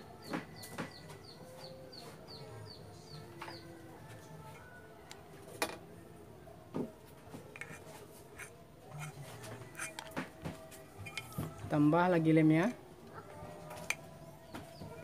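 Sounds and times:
glue gun nozzle scraping metal: 0:08.4 - 0:10.1.

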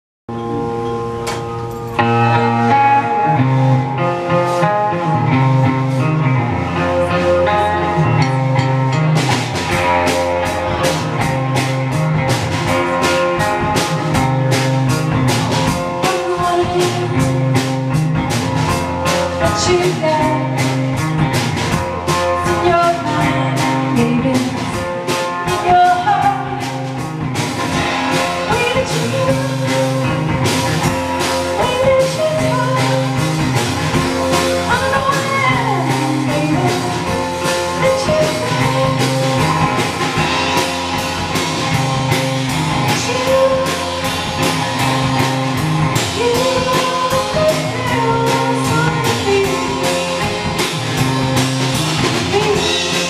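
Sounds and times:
distorted electric guitar: 0:00.3 - 0:53.0
drum kit beating: 0:00.3 - 0:53.0
person singing: 0:22.0 - 0:26.9, 0:34.5 - 0:39.9, 0:42.8 - 0:44.5, 0:46.0 - 0:50.4, 0:52.1 - 0:53.0.

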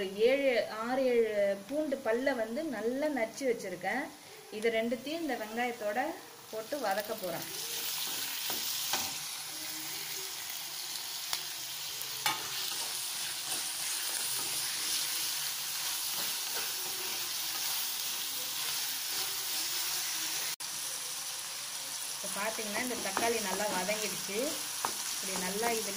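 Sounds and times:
vegetables sizzling in hot oil: 0:04.9 - 0:25.9.

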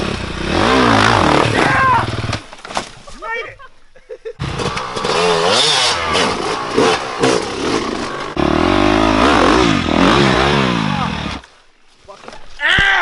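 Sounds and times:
dirt bike engine revving: 0:00.0 - 0:02.4, 0:04.4 - 0:11.4.

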